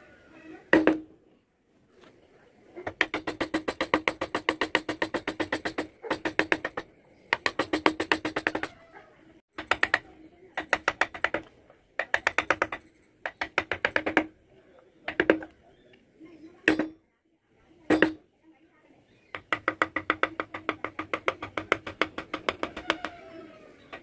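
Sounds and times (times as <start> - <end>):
mallet tapping a chisel into wood: 0.7 - 1.1, 2.9 - 8.7, 9.6 - 10.0, 10.6 - 14.3, 15.1 - 15.5, 16.6 - 17.0, 17.9 - 18.2, 19.3 - 23.2.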